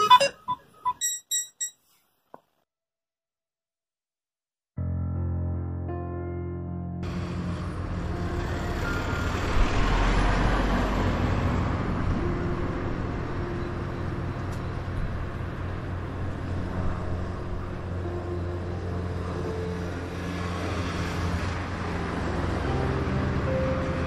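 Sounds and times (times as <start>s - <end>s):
low hum of engines: 7.0s - 24.0s.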